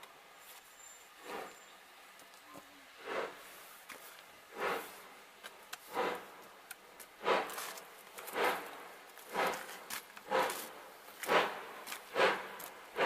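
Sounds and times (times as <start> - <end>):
steam locomotive chuffing: 1.2 - 1.7, 2.9 - 3.7, 4.4 - 13.0.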